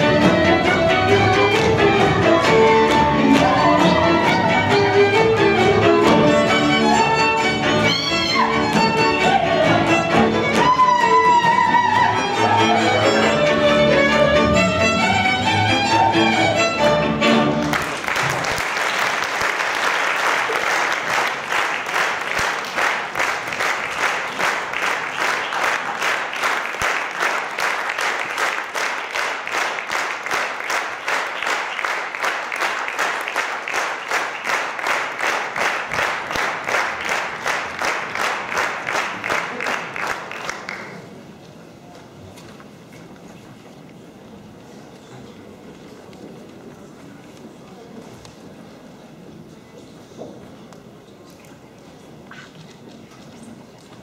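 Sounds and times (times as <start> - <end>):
folk string band playing: 0.0 - 17.9
audience rhythmic clapping: 0.0 - 41.5.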